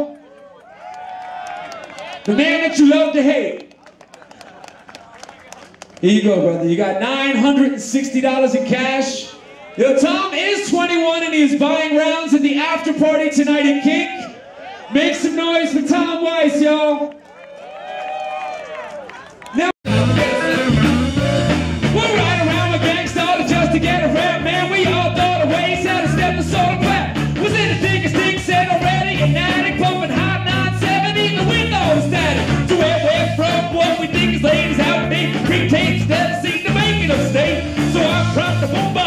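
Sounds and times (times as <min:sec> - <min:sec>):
bass line: 0:19.9 - 0:39.0
electric guitar: 0:19.9 - 0:39.0
man singing: 0:21.8 - 0:39.0.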